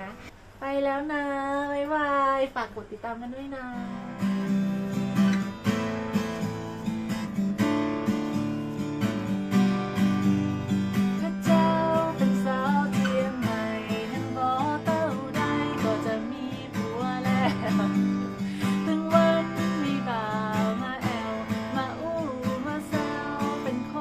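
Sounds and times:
woman singing: 0.6 - 4.4, 11.1 - 24.0
acoustic guitar strumming chords: 3.8 - 24.0.

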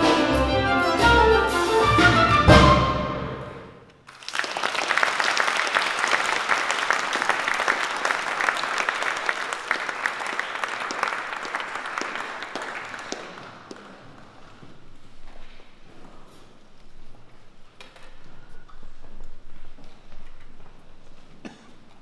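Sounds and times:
audience applauding: 4.0 - 14.4.

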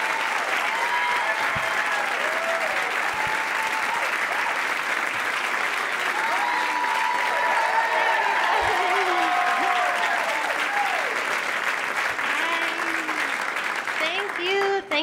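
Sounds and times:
cheers and whoops: 0.0 - 5.0, 5.8 - 11.5, 12.2 - 13.5
audience applauding: 0.0 - 15.0.

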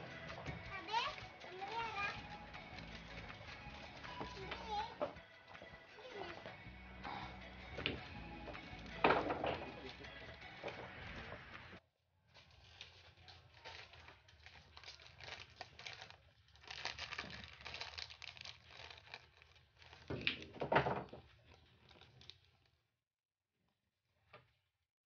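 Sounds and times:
crinkling and rustling: 7.8 - 22.8.

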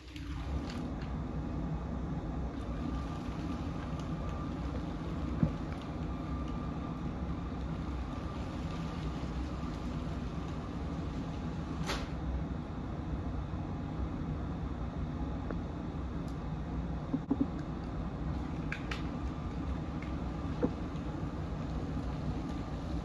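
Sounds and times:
toy train rolling rumble: 0.0 - 1.2, 2.5 - 11.9, 17.8 - 23.0
faint motor whine: 0.0 - 23.0.

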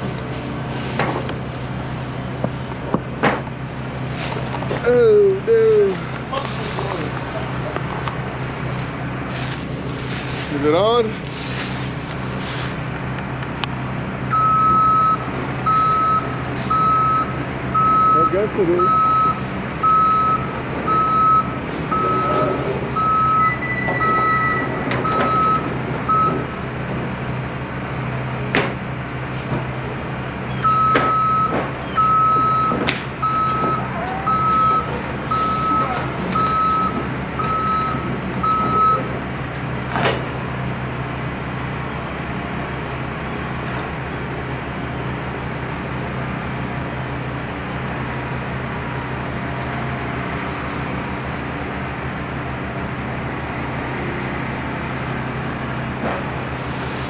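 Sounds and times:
diesel engine running: 0.0 - 57.0
excavator travel alarm beeps: 14.3 - 26.6, 30.5 - 39.1.

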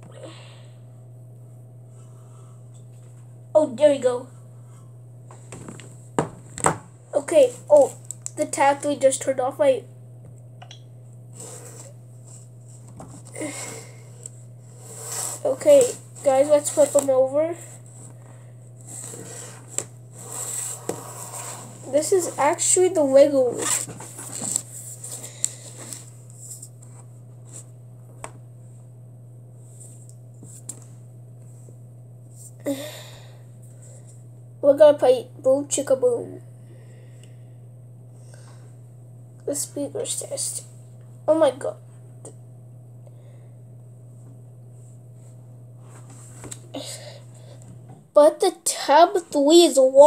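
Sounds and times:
steady low hum: 0.0 - 50.0.

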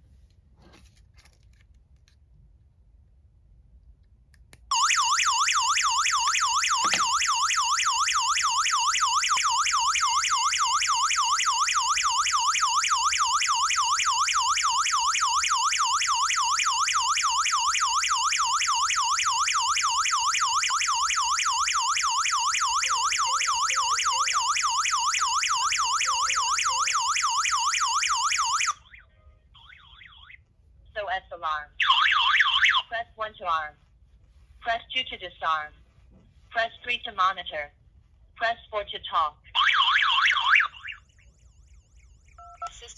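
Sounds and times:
alarm siren warbling: 4.7 - 30.4, 39.6 - 42.9.

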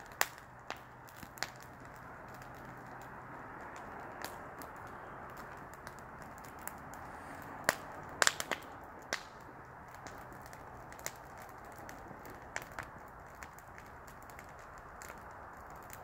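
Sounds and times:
campfire crackling and popping: 0.0 - 16.0
flame rushing: 0.0 - 16.0.

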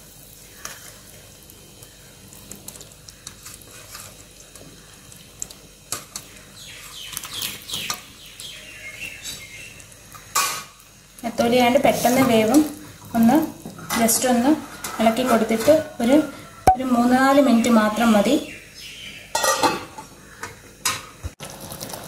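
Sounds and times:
curry simmering with bubbling pops: 0.0 - 15.7.

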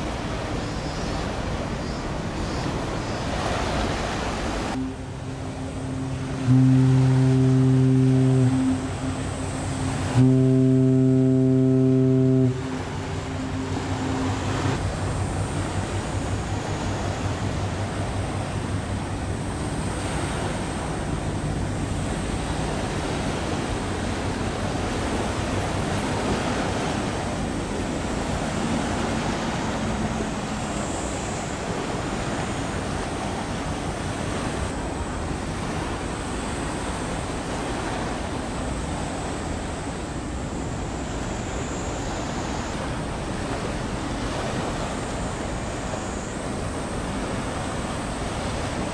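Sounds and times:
wind and sea: 0.0 - 48.9
ship's horn blast: 2.7 - 36.0, 38.9 - 48.9.

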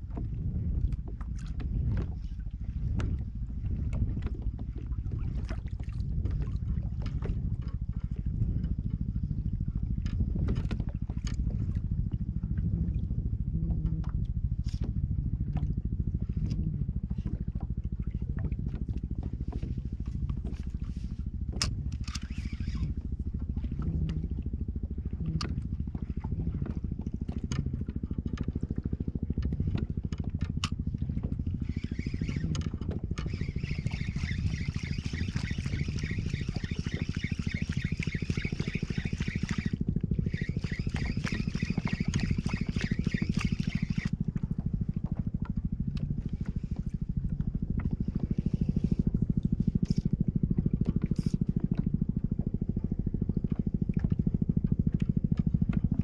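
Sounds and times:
boat motor running: 0.0 - 56.0
high-pitched whirring: 21.9 - 23.0, 31.6 - 44.2.

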